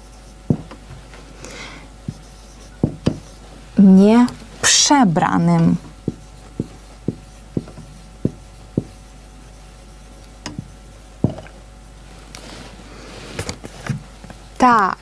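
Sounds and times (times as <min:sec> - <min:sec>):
marker rubbing on whiteboard: 0:00.0 - 0:01.0, 0:02.0 - 0:12.7
marker ticking on whiteboard: 0:06.0 - 0:09.1, 0:10.3 - 0:11.5.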